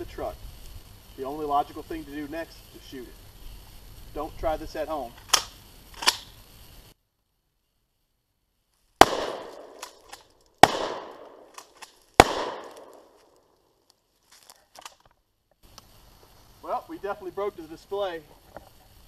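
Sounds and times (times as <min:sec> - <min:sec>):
rifle gunshots with echo: 0:09.0 - 0:10.0, 0:10.6 - 0:11.6, 0:12.2 - 0:13.2.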